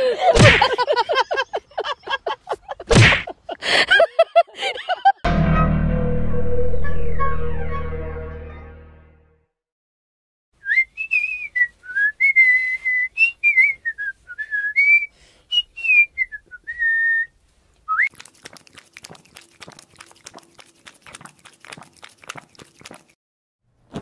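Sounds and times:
person whistling a tune: 10.6s - 17.3s
dog lapping water: 18.1s - 23.2s.

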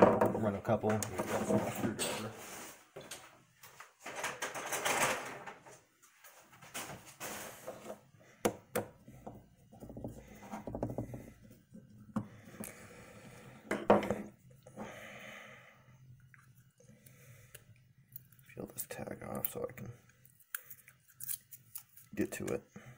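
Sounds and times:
tools knocking on wooden bench: 8.4s - 11.2s, 13.7s - 14.3s.

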